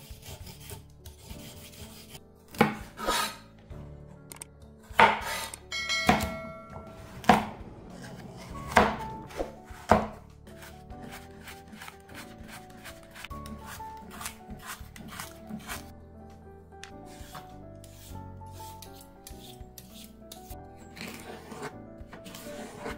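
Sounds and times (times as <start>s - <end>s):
peeler scraping a carrot: 0.0s - 3.5s, 7.9s - 15.9s, 17.1s - 22.9s
soft background music: 0.0s - 22.9s
knife cutting onto wooden board: 0.2s - 3.4s, 4.9s - 5.6s, 7.2s - 15.8s.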